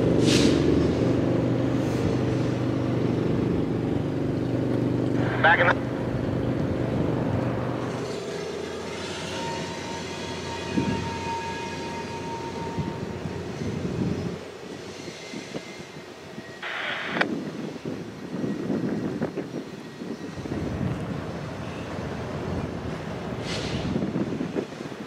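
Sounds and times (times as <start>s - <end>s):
locomotive engine rumble: 0.0s - 8.0s.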